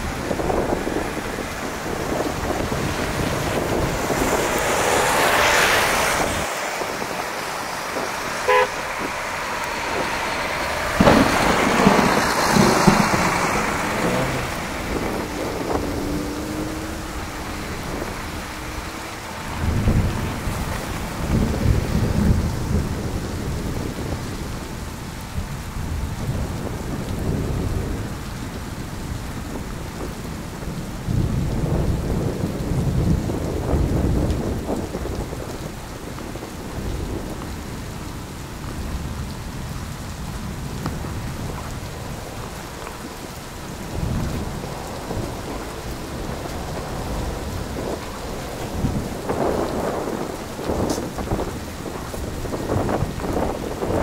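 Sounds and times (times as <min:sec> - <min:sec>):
vehicles passing on snowy streets: 0:00.0 - 0:54.0
car horn toot: 0:08.4 - 0:09.2.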